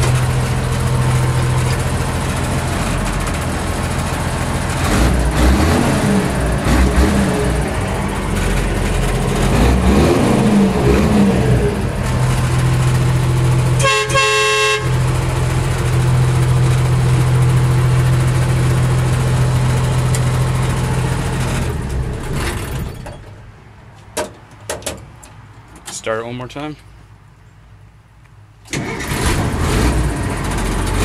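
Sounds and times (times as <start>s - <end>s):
diesel truck engine running: 0.0s - 23.9s, 28.7s - 31.0s
truck horn: 13.7s - 15.2s
engine clicks: 28.2s - 29.4s.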